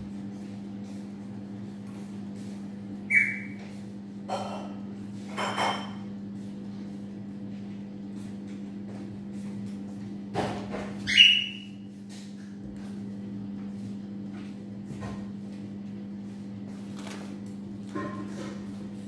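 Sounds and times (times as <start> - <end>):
pet's short high calls: 3.1 - 3.6, 11.1 - 11.7.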